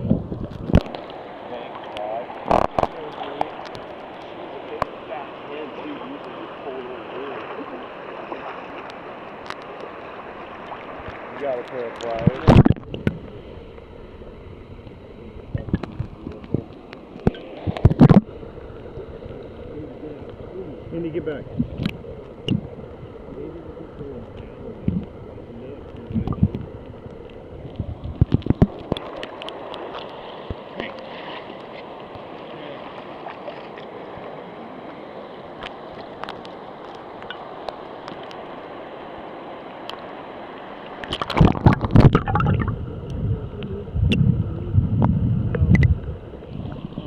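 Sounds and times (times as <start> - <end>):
water splash: 0.0 - 13.4, 15.5 - 18.4, 40.8 - 42.8
muffled water sloshing: 0.0 - 47.0.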